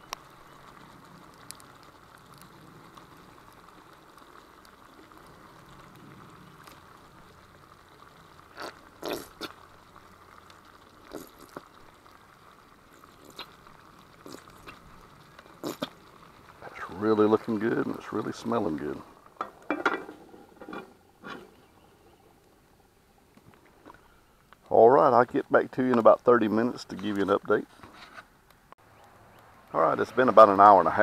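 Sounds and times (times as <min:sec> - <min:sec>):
meat sizzling in a pan: 0:00.0 - 0:21.8
sauce splatting and popping: 0:13.0 - 0:16.5.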